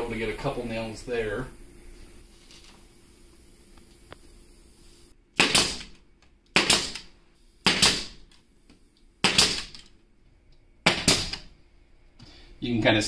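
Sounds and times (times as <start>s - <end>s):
nail gun firing: 5.4s - 8.2s, 9.2s - 9.9s, 10.8s - 11.5s.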